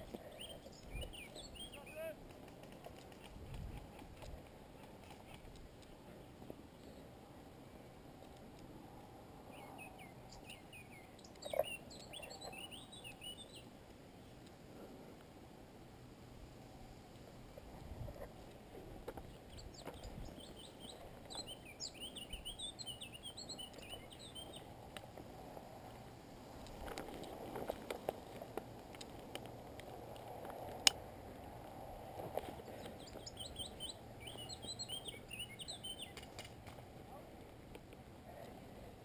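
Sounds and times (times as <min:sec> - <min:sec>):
small birds chirping: 0:00.0 - 0:08.3, 0:09.5 - 0:14.4, 0:19.1 - 0:24.8, 0:32.4 - 0:36.5
rustling of grass and gear: 0:11.2 - 0:34.2.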